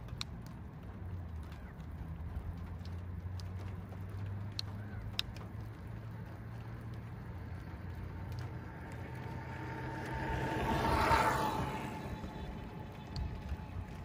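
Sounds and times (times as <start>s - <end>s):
vehicle passing by: 2.0s - 14.0s
steady low hum: 5.5s - 14.0s.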